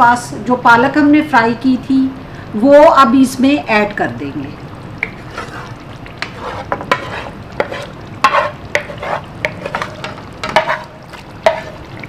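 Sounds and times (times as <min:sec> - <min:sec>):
wooden spatula scraping frying pan: 0:05.2 - 0:11.9.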